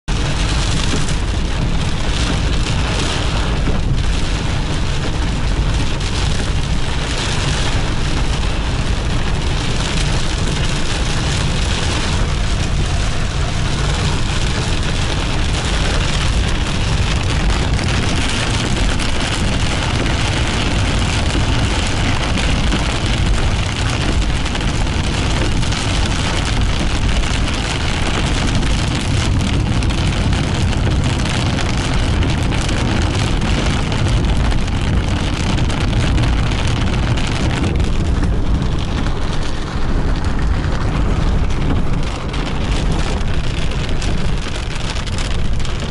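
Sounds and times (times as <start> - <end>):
car driving on wet road: 0.0 - 45.9
heavy rain hitting a car: 0.0 - 45.9.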